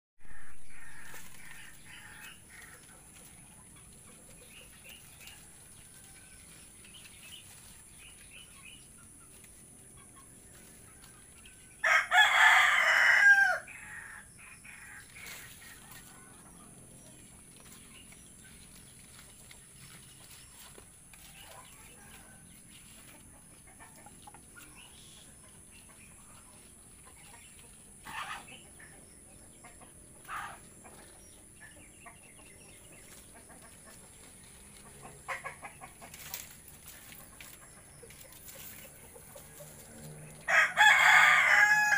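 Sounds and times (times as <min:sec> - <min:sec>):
rooster crowing: 0:00.2 - 0:02.6, 0:11.8 - 0:15.0, 0:40.4 - 0:41.9.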